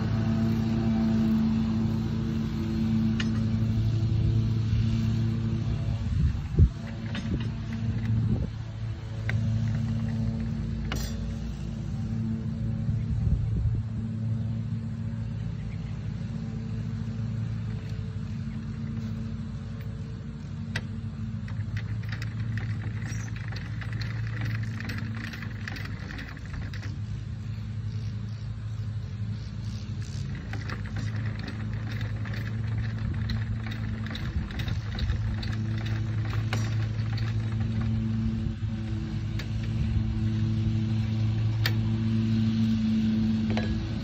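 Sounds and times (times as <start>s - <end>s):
rapid clicking of lowering device: 0.0s - 12.0s, 17.4s - 44.0s
low engine hum: 0.0s - 44.0s.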